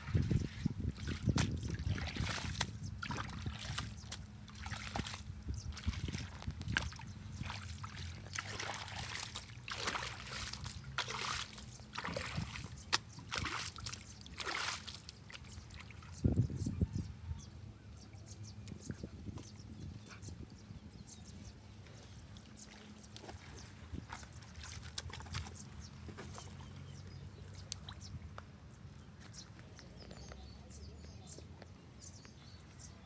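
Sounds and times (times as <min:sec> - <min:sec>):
rake splashing through water: 0:00.0 - 0:16.1, 0:22.4 - 0:26.6
muddy water flowing from pipe: 0:00.0 - 0:16.2, 0:22.2 - 0:25.9.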